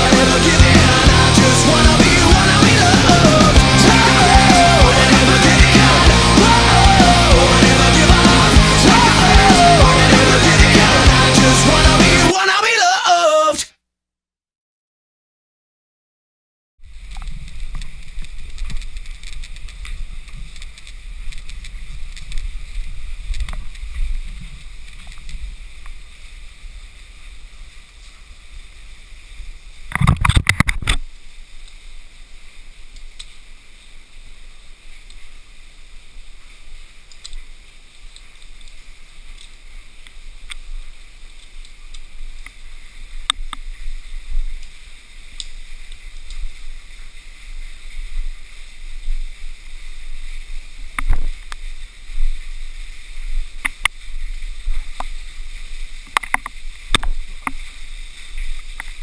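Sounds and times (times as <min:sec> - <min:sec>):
camera handling rumble: 0:29.9 - 0:31.1.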